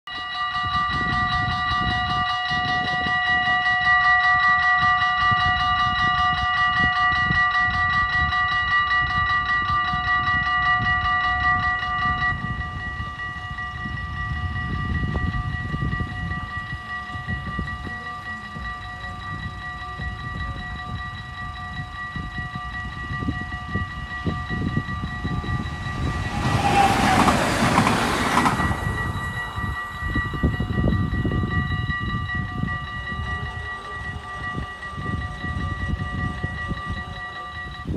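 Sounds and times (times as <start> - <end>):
level crossing bells ringing: 0.2 - 37.9
wind rumbling on microphone: 0.5 - 37.9
train rushing past: 23.5 - 31.6.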